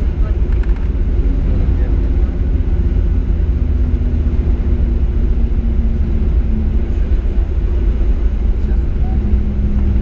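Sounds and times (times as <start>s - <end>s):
airplane rolling on runway: 0.0s - 10.0s
jet engines humming: 0.0s - 10.0s.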